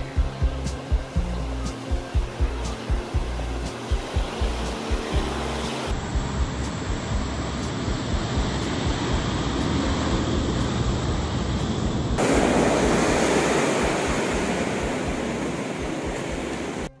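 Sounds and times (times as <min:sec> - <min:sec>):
water churning in boat wake: 0:00.0 - 0:17.0.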